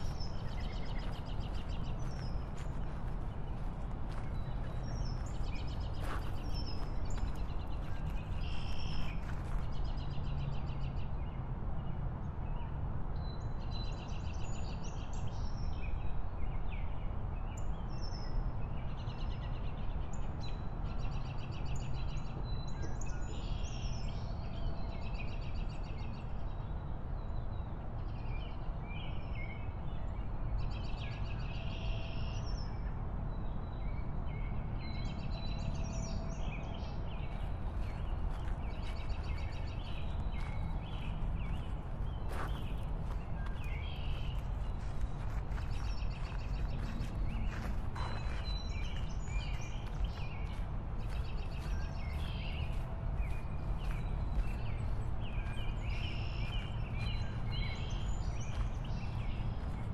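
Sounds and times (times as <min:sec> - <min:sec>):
motorbike wind and road noise: 0:00.0 - 0:10.5
birds chirping: 0:35.8 - 0:59.9.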